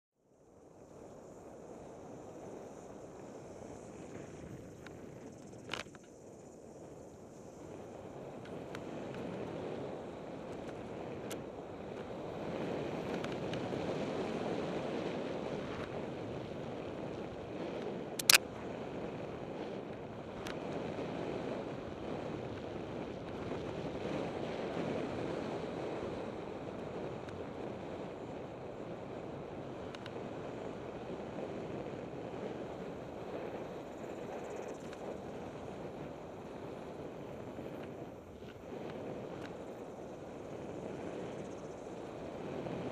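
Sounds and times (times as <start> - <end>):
wind on microphone: 0.6 - 42.9
bike tyres on dirt trail: 0.8 - 42.9
sharp click: 18.2 - 18.4.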